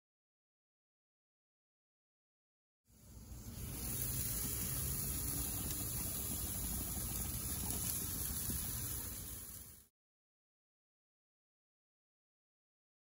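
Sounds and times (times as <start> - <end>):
patties sizzling on a grill: 2.9 - 9.9.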